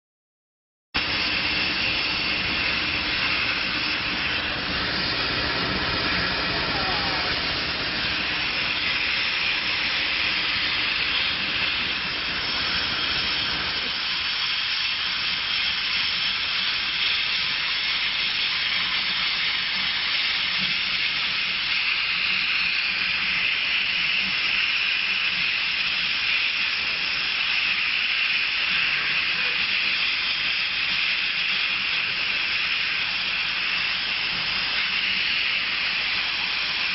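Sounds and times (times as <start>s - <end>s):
low machine hum: 1.0s - 13.9s
laser cutter hissing: 1.0s - 36.9s.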